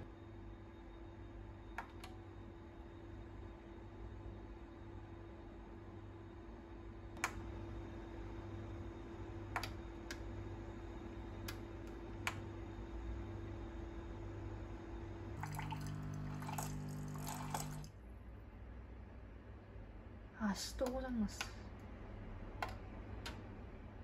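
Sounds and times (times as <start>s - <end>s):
coffee machine hum: 13.0s - 18.0s
coffee machine pump buzzing: 15.4s - 17.9s
water running into glass: 15.4s - 17.9s.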